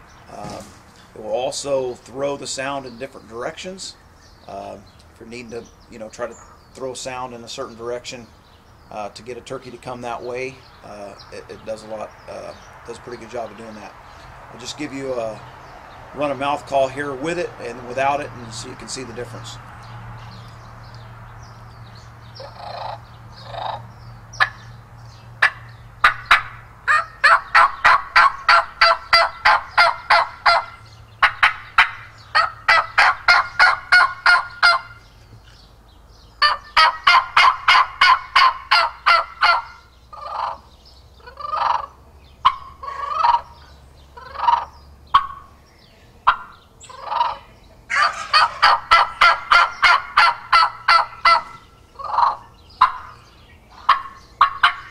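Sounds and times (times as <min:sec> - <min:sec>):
turkey mouth call yelps: 0:22.4 - 0:23.8, 0:25.4 - 0:35.0, 0:36.4 - 0:40.6, 0:41.2 - 0:45.5, 0:46.2 - 0:53.2, 0:53.8 - 0:54.9.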